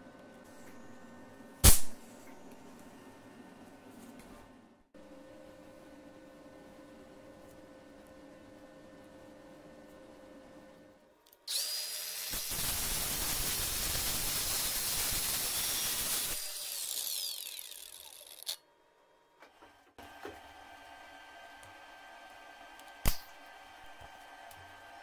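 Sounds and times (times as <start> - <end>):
angle grinder cutting steel: 11.5 - 18.6.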